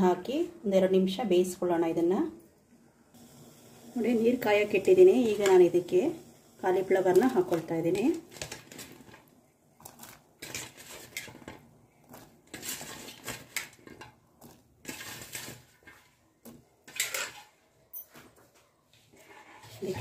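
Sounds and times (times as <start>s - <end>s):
vegetables splashing into pot: 4.1s - 17.6s.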